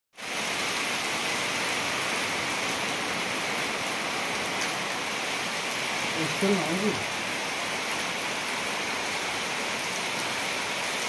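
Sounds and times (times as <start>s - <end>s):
steady rain falling: 0.2s - 11.0s.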